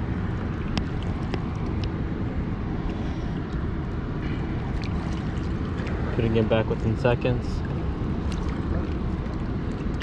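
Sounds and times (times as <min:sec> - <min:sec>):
moving water rumbling: 0:00.0 - 0:10.0
small splashes and drips: 0:04.6 - 0:06.4, 0:07.5 - 0:10.0.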